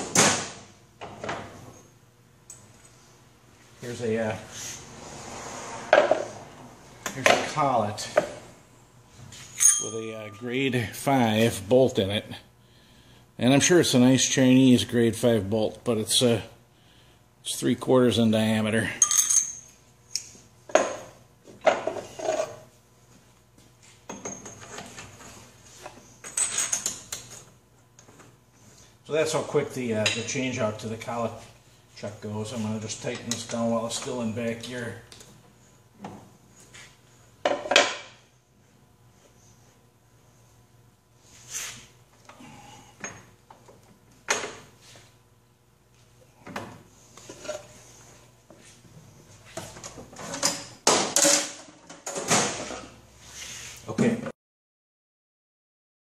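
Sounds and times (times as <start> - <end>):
metal wrenches clanking: 9.4 - 10.1.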